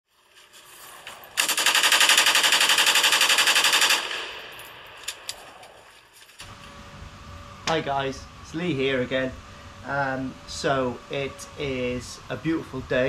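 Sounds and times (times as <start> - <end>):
automatic gunfire: 1.4 - 4.6.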